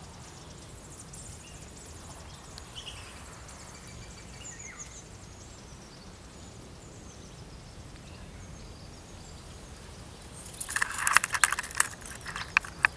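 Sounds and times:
birds chirping in the distance: 0.0 - 12.9
rapid rustling clicks and crackles: 10.4 - 12.9.

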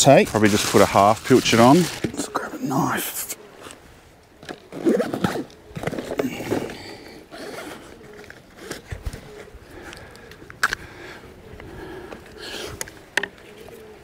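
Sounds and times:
hand rummaging through pockets: 0.0 - 2.4, 4.4 - 10.8
backpack zipper opening: 4.7 - 6.6.

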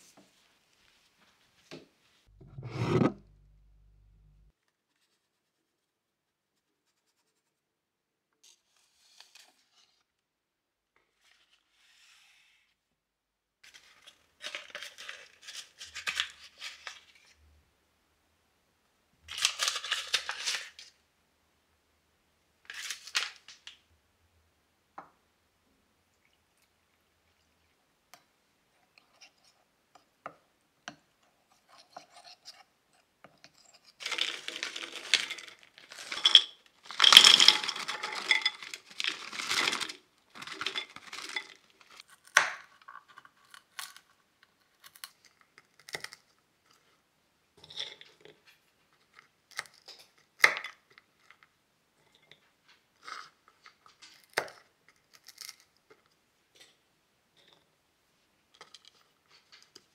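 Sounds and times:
rustling and scraping: 0.0 - 5.2, 33.4 - 42.0.

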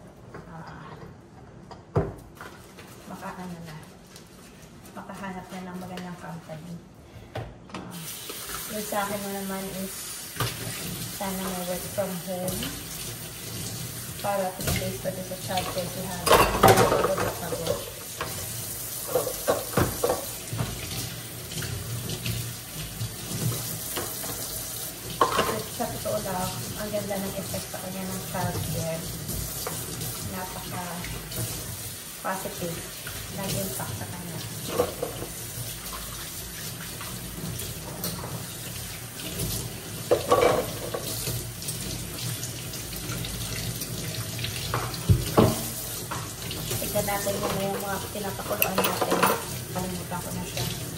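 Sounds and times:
dishes clattering: 15.6 - 18.4, 19.0 - 20.7, 25.2 - 25.8, 40.1 - 41.2, 47.3 - 49.7
tap running into metal sink: 44.6 - 46.3.

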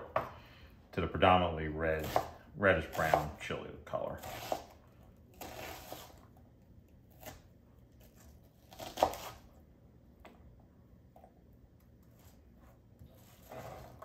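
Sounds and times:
knife chopping on cutting board: 2.0 - 3.4, 4.2 - 4.8, 8.7 - 9.4.

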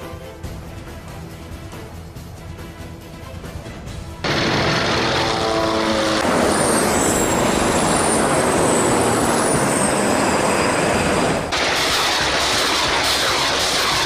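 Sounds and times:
tank engine and tracks: 0.0 - 14.0
high whine gliding down: 4.2 - 13.8.

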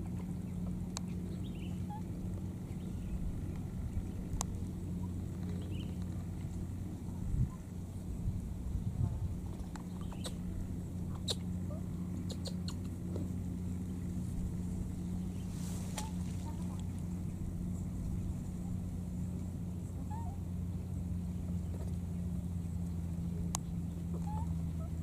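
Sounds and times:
steady low hum: 0.0 - 25.0
dry grass and twigs crackling: 13.2 - 19.6.

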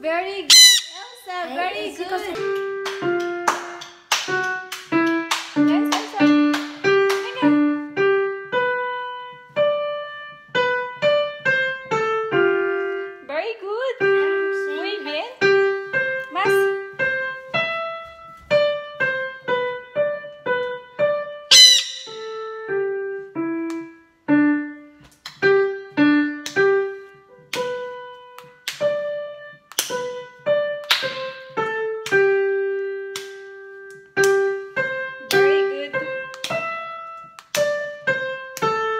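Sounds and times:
short high squeak: 0.5 - 1.2, 21.5 - 22.4
solo piano melody: 2.0 - 38.9.

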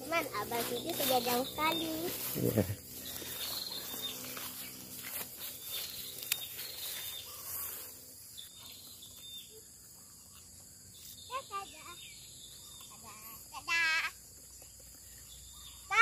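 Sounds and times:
insects shrilling: 0.0 - 14.4.

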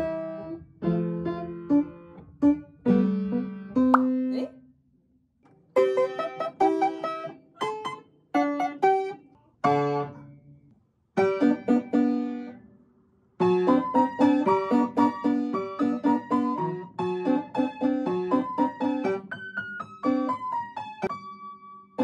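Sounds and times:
upright piano chords: 0.0 - 4.5, 13.4 - 22.0.

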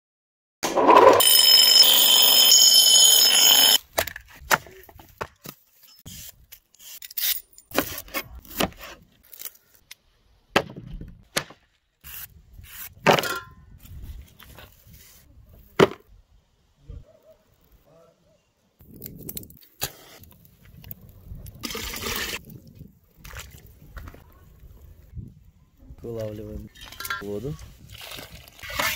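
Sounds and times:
bench grinder grinding blade: 0.7 - 3.8.

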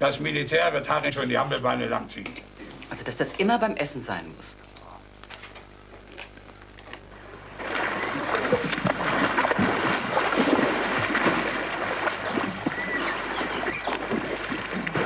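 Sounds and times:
water splashing and churning: 7.4 - 15.0.

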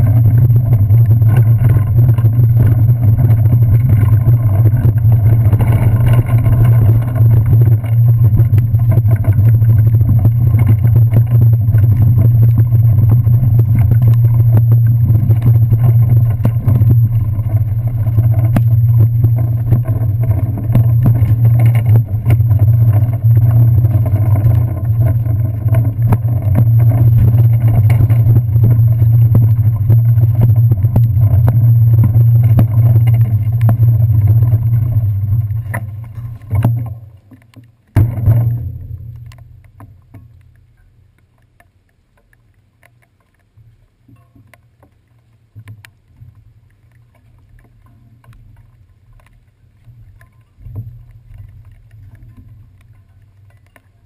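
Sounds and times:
muffled low rumble: 0.0 - 37.3, 38.0 - 41.1
bicycle knocks and rattles: 13.6 - 34.8, 38.0 - 40.4.

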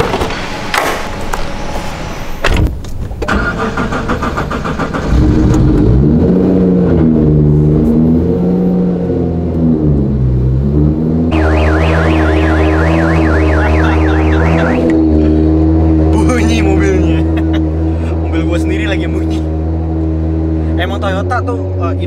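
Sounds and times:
engine cranking on starter: 3.2 - 5.8
car engine revving and idling: 3.8 - 22.0.

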